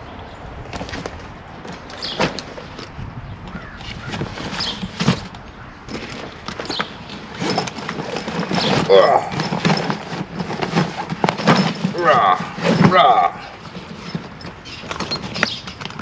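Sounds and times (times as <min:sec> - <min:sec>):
fabric rustling and scraping: 0:03.6 - 0:16.0.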